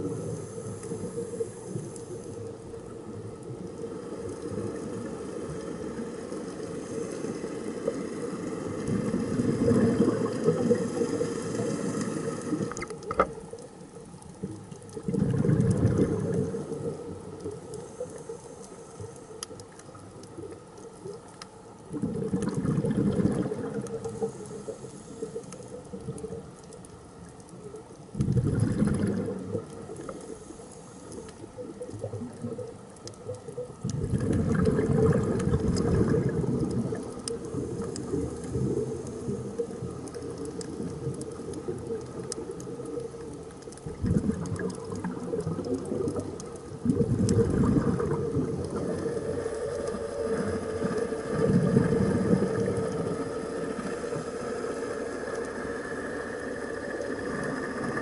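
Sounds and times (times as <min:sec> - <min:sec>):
faint clicks and crackle: 0:00.0 - 0:58.0
air bubbling underwater: 0:15.0 - 0:16.8, 0:21.9 - 0:23.8, 0:28.2 - 0:29.6, 0:33.9 - 0:37.6, 0:43.8 - 0:49.3.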